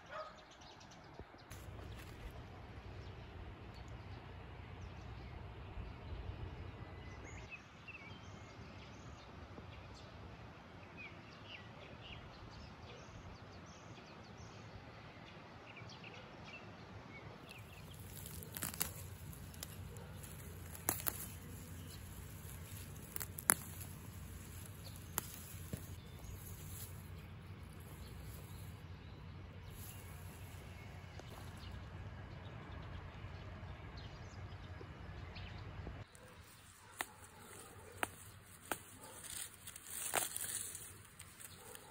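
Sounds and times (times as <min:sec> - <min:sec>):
small birds chirping: 0:17.4 - 0:41.9.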